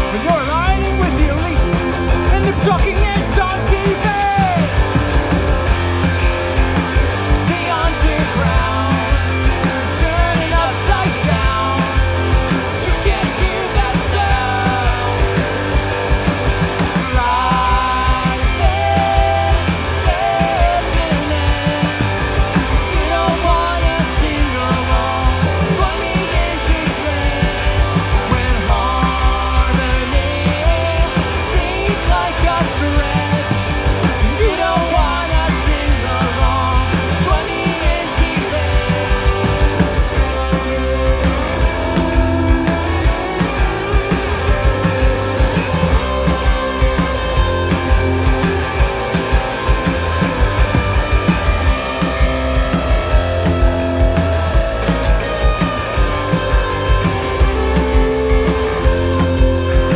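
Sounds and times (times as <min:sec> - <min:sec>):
man singing: 0:00.0 - 0:04.9, 0:07.3 - 0:16.0, 0:16.9 - 0:48.5
drum kit: 0:00.0 - 0:59.9
electric bass: 0:00.0 - 0:59.9
electric guitars: 0:00.0 - 0:59.9.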